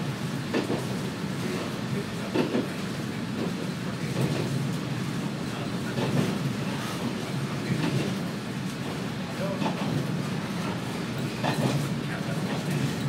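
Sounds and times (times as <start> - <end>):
diesel railcar engine drone: 0.0 - 13.0.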